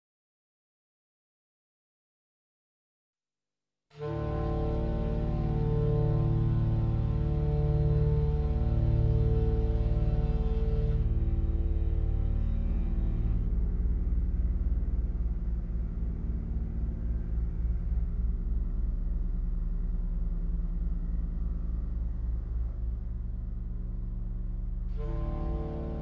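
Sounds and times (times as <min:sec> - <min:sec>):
low electronic drone: 0:04.0 - 0:26.0
rumbling bass with flutter: 0:04.0 - 0:26.0.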